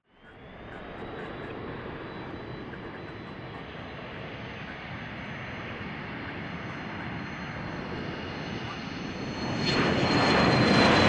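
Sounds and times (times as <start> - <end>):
jet engines roaring on runway: 0.2 - 11.0
high jet whine: 0.3 - 11.0.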